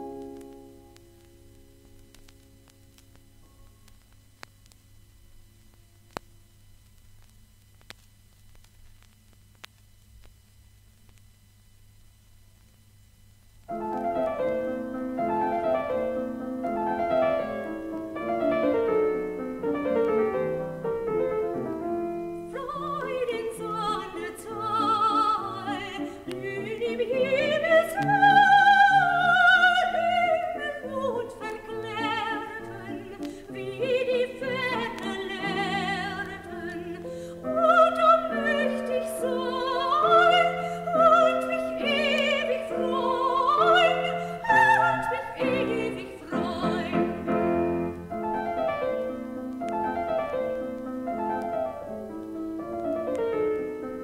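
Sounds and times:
piano accompaniment: 13.7 - 54.0
soprano singing: 22.4 - 50.5.

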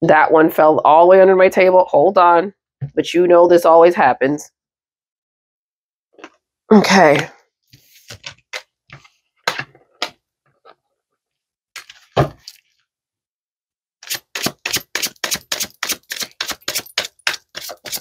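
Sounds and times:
deck of cards being shuffled: 7.8 - 10.2.

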